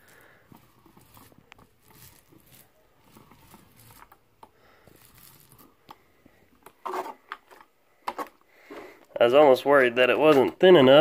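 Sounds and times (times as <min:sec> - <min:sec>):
paint roller rasping on wall: 0:00.0 - 0:04.2.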